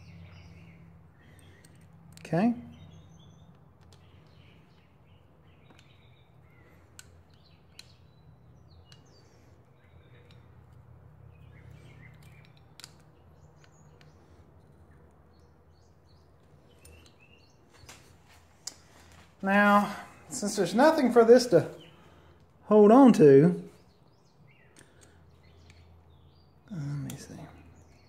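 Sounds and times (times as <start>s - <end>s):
faint birds chirping: 0.0s - 28.0s
steady low hum: 0.0s - 28.0s
metal tool clicks: 11.8s - 14.2s.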